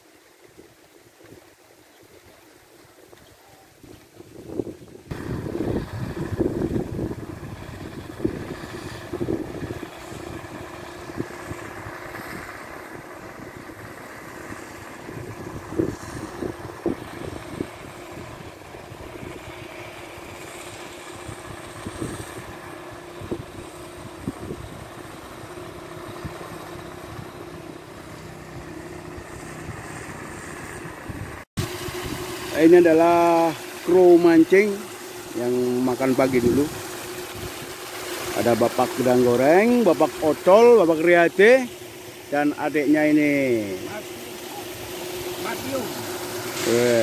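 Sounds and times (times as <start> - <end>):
wind gusts on microphone: 0.5 - 20.4, 21.1 - 27.6, 28.2 - 33.2, 36.3 - 37.8
aerator motor humming: 4.4 - 47.0.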